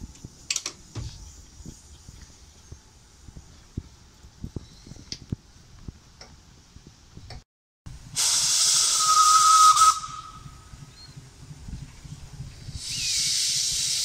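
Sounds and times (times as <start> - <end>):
locomotive steam hiss: 8.1 - 10.8, 12.6 - 14.0
locomotive whistle: 8.2 - 10.7.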